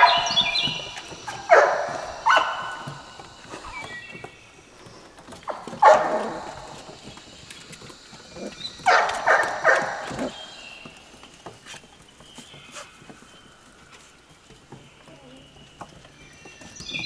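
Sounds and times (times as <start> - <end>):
puppies barking in high yips: 0.0 - 3.7, 5.5 - 7.8, 8.4 - 10.4.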